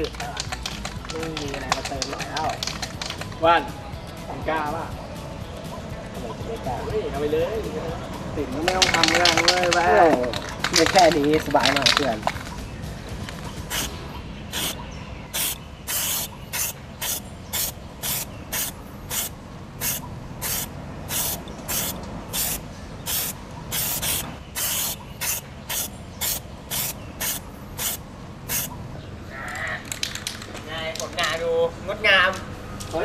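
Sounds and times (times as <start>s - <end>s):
spray paint can hissing: 13.6s - 28.8s.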